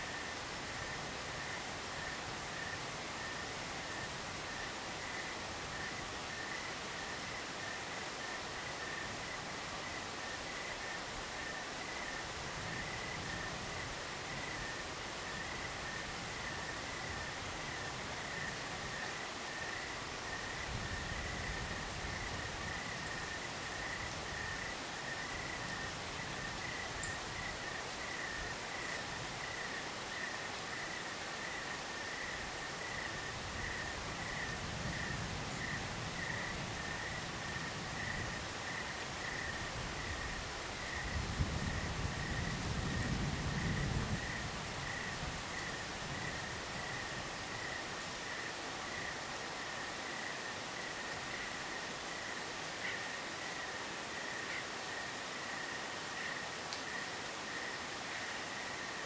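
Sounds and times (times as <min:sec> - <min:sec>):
cricket chirping: 0:00.0 - 0:59.0
soft even hiss: 0:00.0 - 0:59.0
wind rumble on microphone: 0:12.3 - 0:19.0, 0:20.3 - 0:29.6, 0:32.8 - 0:47.8.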